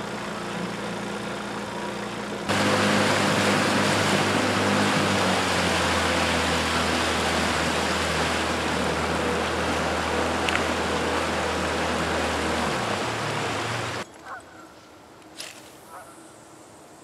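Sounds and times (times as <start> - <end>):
water rushing: 0.0 - 14.0
outboard motor running: 0.0 - 14.4.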